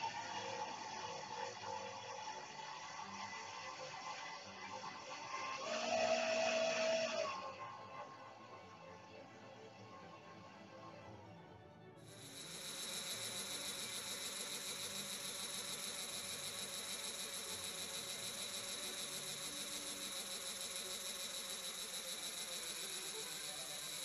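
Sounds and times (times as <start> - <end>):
electric drill grinding valve: 12.1 - 24.0.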